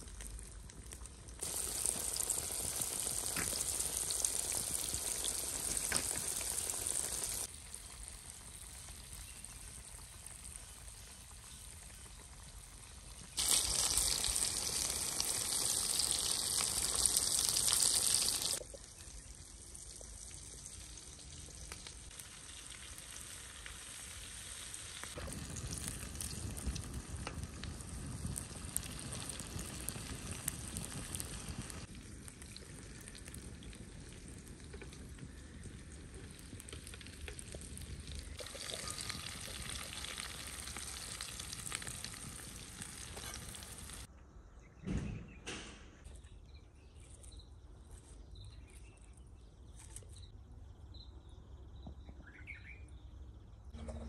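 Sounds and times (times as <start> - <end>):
meat sizzling in hot oil: 1.2 - 44.1.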